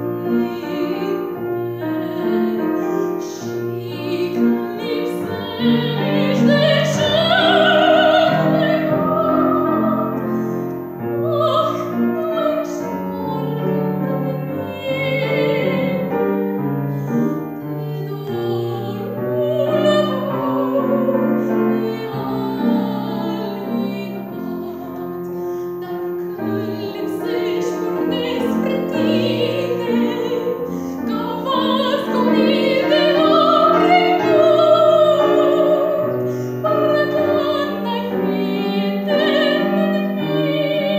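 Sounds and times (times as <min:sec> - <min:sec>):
piano: 0:00.0 - 0:40.9
woman singing classical song: 0:00.0 - 0:40.9.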